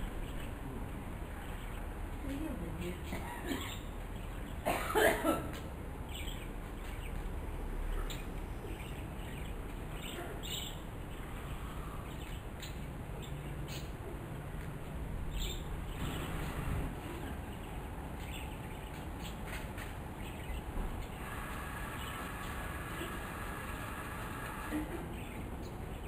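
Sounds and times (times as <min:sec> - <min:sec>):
bird chirps: 0:15.3 - 0:16.7.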